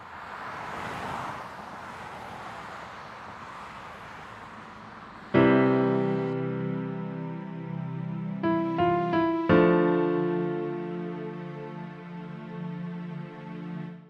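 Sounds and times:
piano chord ringing: 5.4s - 12.2s.

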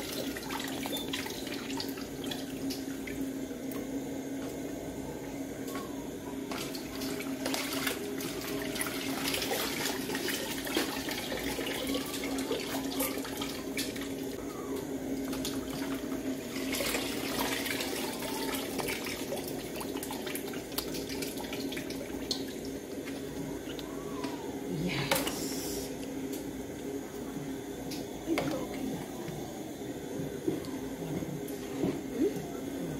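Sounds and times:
steady low hum: 0.0s - 32.9s.

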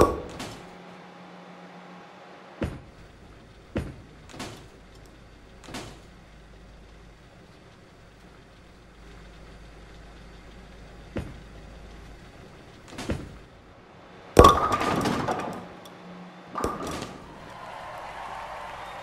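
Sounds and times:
knocks and thuds: 2.6s - 3.0s, 3.7s - 4.7s, 11.1s - 11.5s, 12.9s - 13.4s.

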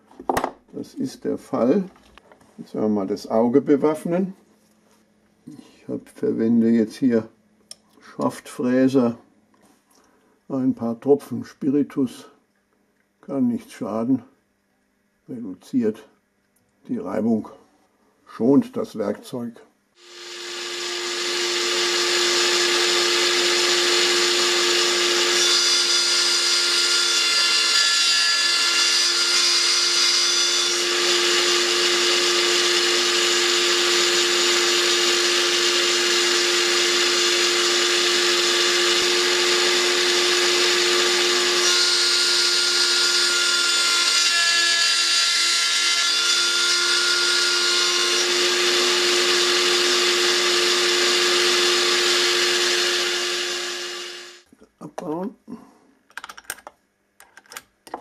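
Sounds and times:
milling machine running: 20.0s - 25.4s, 30.7s - 44.0s, 46.4s - 54.4s
ringing cutter whine: 20.0s - 45.2s, 45.8s - 54.4s.

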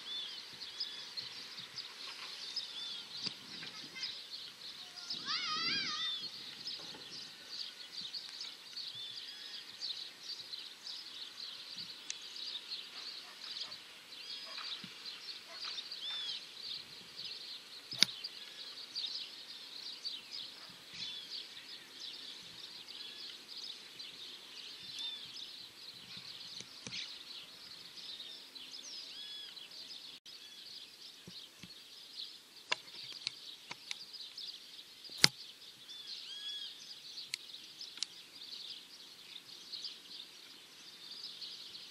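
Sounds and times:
small birds chirping: 0.0s - 41.9s
sharp clicks: 35.2s - 35.4s.

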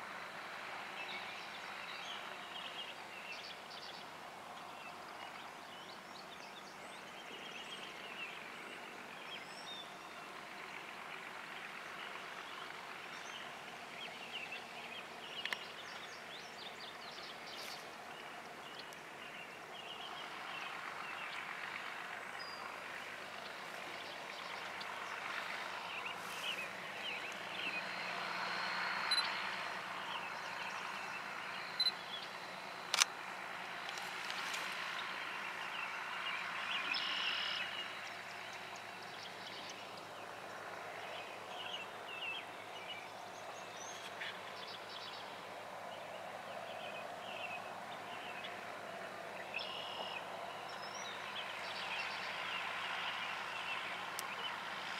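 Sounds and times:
birds chirping: 11.5s - 54.9s
tractor diesel engine running: 18.0s - 36.7s.

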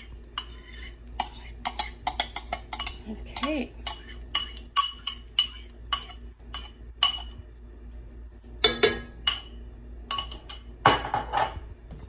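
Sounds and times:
metal spoon scraping ceramic bowl: 0.0s - 7.4s.

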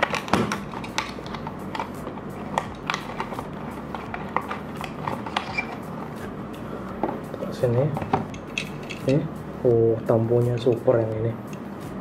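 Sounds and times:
cardboard packaging clicks and rustles: 0.0s - 5.8s
steady low hum: 0.0s - 12.0s.

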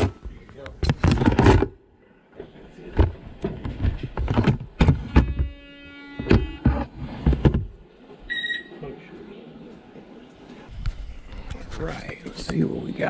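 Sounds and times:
buzzing tone: 5.1s - 6.9s.

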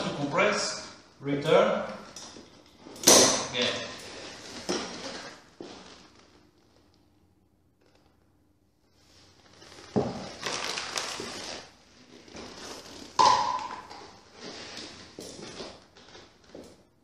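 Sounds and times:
glass bottles knocking and scraping: 13.2s - 14.1s.

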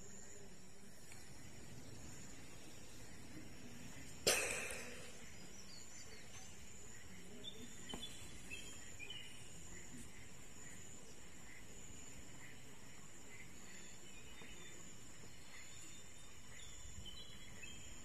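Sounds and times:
high insect drone: 0.0s - 18.0s
bird chirps: 1.1s - 11.7s
sharp knock: 4.2s - 5.3s.

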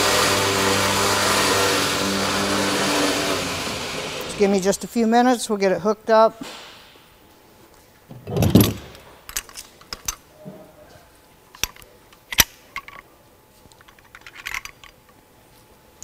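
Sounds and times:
metallic clicks and clinks: 13.7s - 15.2s.

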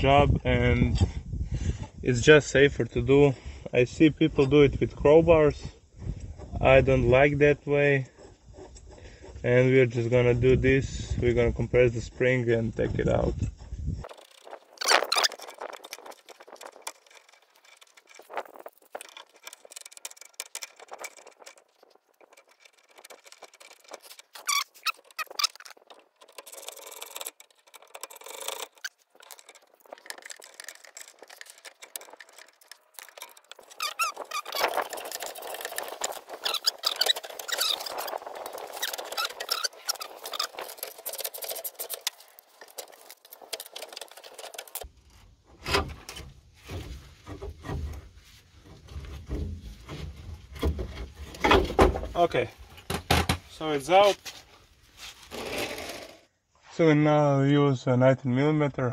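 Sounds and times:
metal squeaking and clicking: 11.9s - 44.9s
metal knocks and clunks: 45.4s - 53.6s.

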